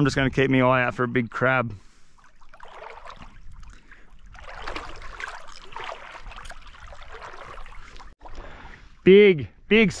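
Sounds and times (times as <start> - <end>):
legs wading through water: 1.8 - 9.0.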